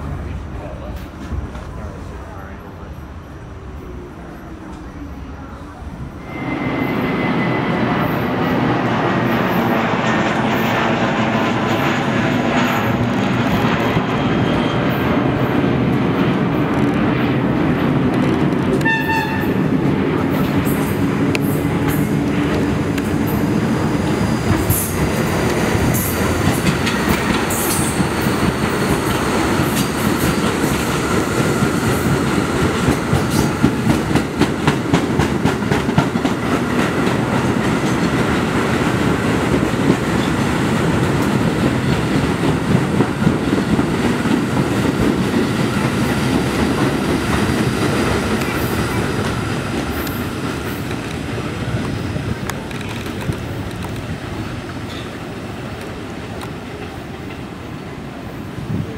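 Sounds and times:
train wheels rumbling on rails: 0:00.0 - 0:58.9
train horn blast: 0:18.8 - 0:19.7.

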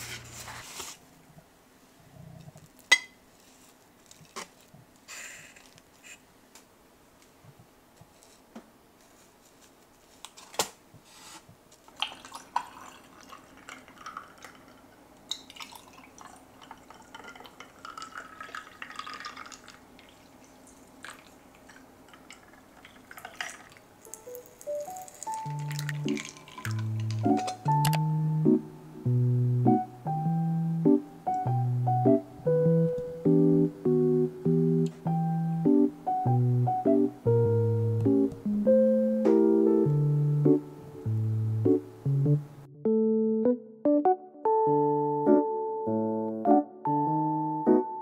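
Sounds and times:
milk pouring into glasses: 0:11.9 - 0:27.6
tea pouring into glasses: 0:11.9 - 0:27.6.

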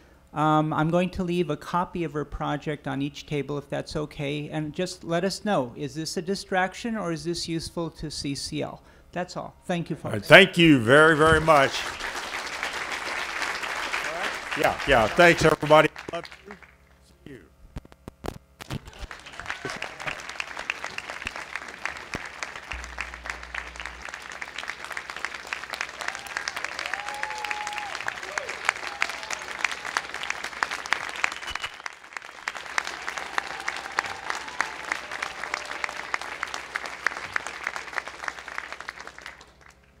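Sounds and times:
audience applauding: 0:10.3 - 0:17.0, 0:18.6 - 0:40.0.

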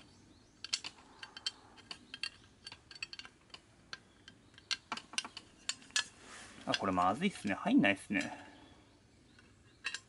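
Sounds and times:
metal and plastic parts clicking: 0:00.6 - 0:06.1, 0:09.4 - 0:10.0.

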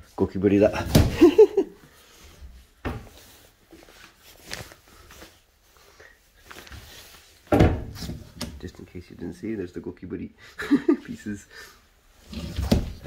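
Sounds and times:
cabinet doors and drawer knocking: 0:07.5 - 0:08.4.

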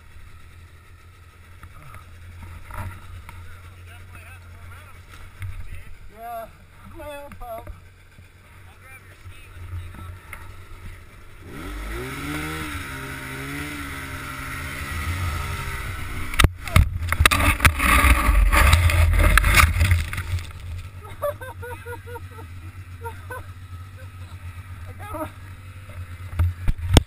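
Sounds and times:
snowmobile engine revving: 0:00.0 - 0:27.0
sled thrashing and knocking in snow: 0:16.5 - 0:27.0.

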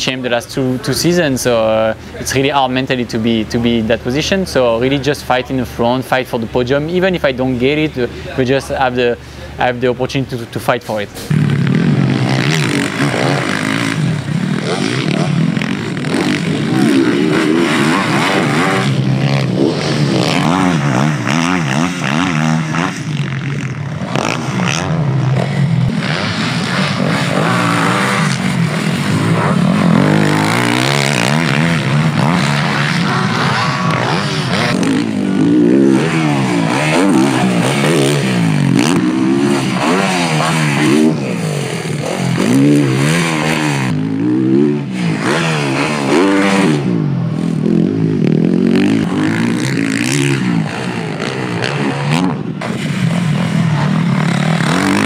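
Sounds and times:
motocross bike engine revving: 0:00.0 - 0:55.0.

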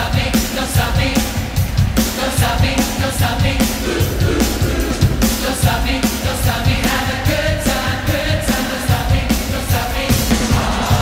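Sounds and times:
choir singing rock song: 0:00.0 - 0:11.0
drum kit beat: 0:00.0 - 0:11.0
live band playing: 0:00.3 - 0:08.1.

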